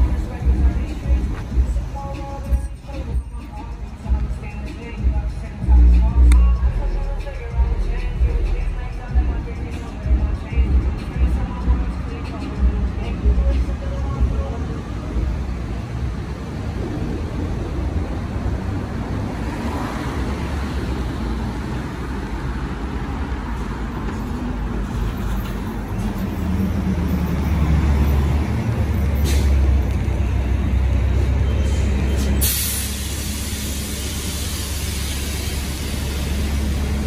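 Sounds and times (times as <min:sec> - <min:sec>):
bus diesel engine rumbling: 0:00.0 - 0:37.0
air brake hiss: 0:29.2 - 0:29.6, 0:31.6 - 0:36.7.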